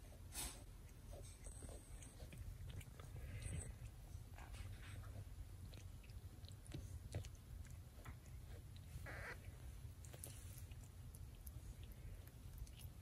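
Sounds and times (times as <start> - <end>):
cat licking kitten: 0.0 - 13.0
low steady rumble: 0.0 - 13.0
soft rustle: 7.9 - 13.0.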